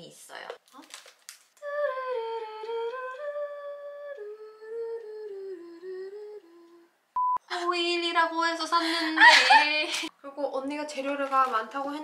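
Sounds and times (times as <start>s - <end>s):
woman humming a slow tune: 1.6s - 7.0s.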